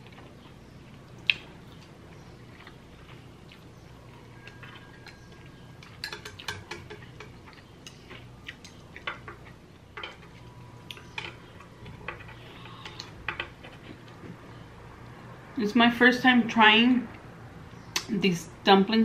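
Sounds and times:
wet chewing mouth sounds: 0:00.0 - 0:06.6.

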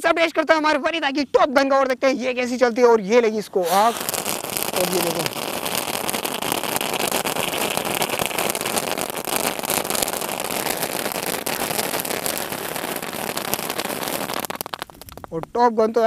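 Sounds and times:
small firework crackles: 0:01.9 - 0:16.0
firework sparks hissing: 0:03.4 - 0:15.6.

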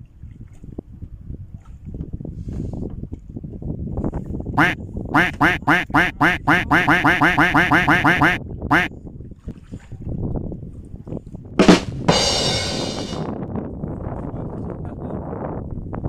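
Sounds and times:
duck quacking: 0:04.6 - 0:08.9.

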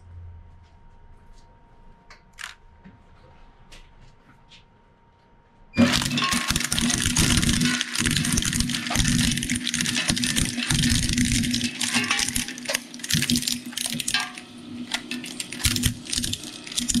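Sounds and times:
shredder crunching plastic: 0:05.8 - 0:17.0.

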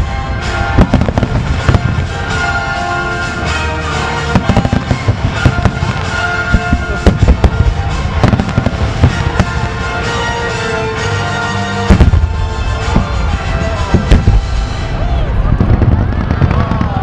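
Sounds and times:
music: 0:00.0 - 0:17.0.

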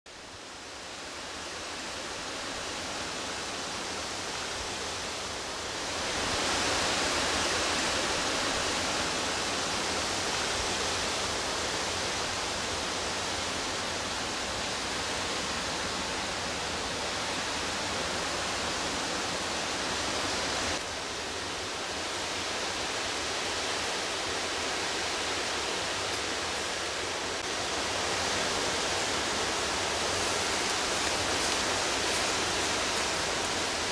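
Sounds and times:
outdoor ambient hiss: 0:00.1 - 0:33.9.

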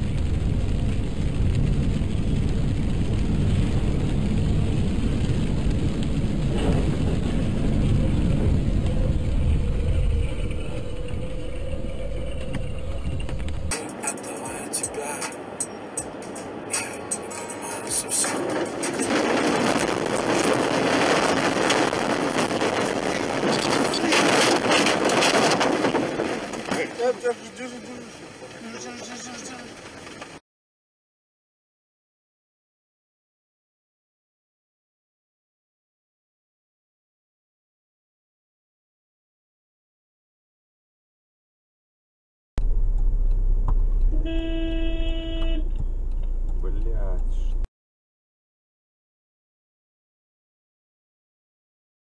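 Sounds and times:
rain on windscreen: 0:00.0 - 0:30.4, 0:42.6 - 0:47.5
tyre and road noise: 0:00.0 - 0:30.4, 0:42.6 - 0:47.7
car rushing through brush: 0:16.4 - 0:30.4.

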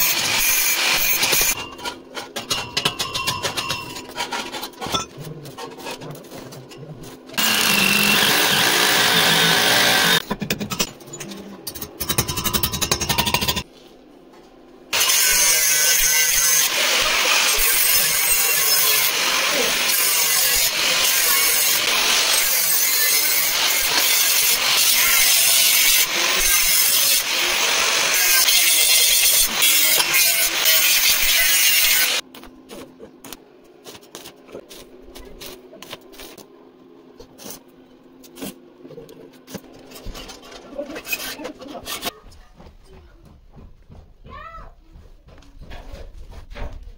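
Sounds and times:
angle grinder cutting steel: 0:00.0 - 0:01.6, 0:07.4 - 0:10.2, 0:15.0 - 0:32.2.

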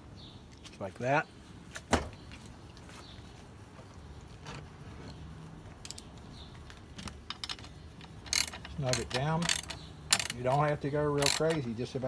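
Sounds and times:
nuts and bolts clicking: 0:05.1 - 0:11.8.

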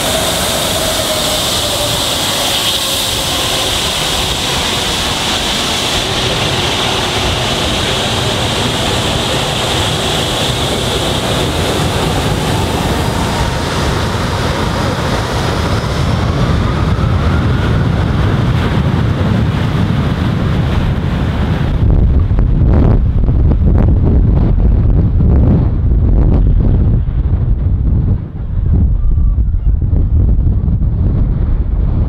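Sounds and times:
jet engines whining: 0:00.0 - 0:23.6
jet blast rumble: 0:00.0 - 0:32.0.

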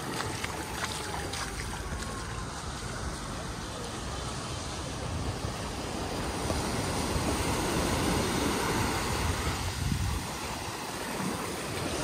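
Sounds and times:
small waves washing on sand: 0:00.0 - 0:12.0
wind buffeting microphone: 0:04.9 - 0:12.0.

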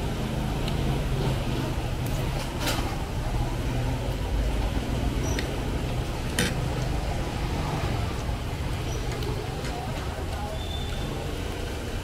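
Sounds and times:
street traffic rumble: 0:00.0 - 0:12.0.

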